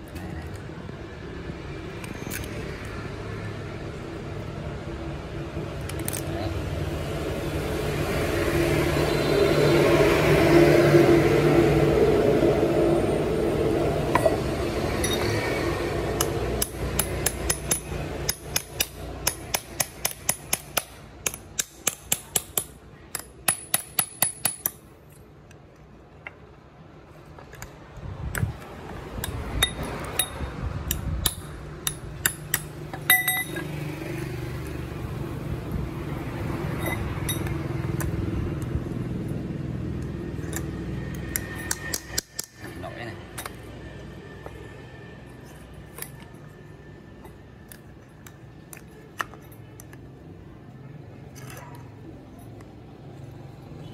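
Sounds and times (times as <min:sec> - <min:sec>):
metal tools clicking on wire: 0:05.8 - 0:06.4, 0:14.1 - 0:15.5, 0:16.1 - 0:26.4, 0:27.4 - 0:33.8, 0:36.8 - 0:38.8, 0:40.0 - 0:43.7.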